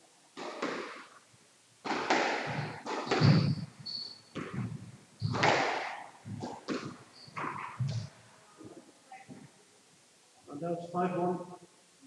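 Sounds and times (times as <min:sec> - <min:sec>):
squash ball cracking off walls: 0:00.4 - 0:01.2, 0:01.8 - 0:03.7, 0:04.3 - 0:08.1
low thuds: 0:02.0 - 0:09.5
shoe squeaks on court floor: 0:02.5 - 0:05.5, 0:06.8 - 0:08.1.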